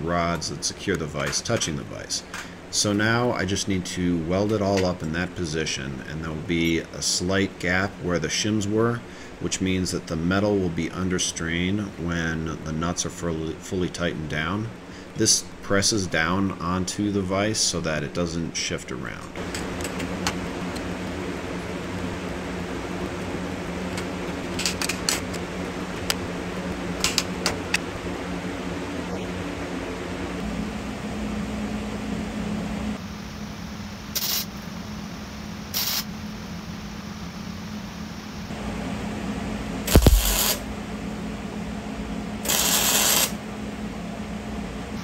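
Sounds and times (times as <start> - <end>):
steady background hum: 0.0 - 45.0
welding arc crackle: 34.2 - 34.5, 35.8 - 36.1, 39.9 - 40.6, 42.4 - 43.4.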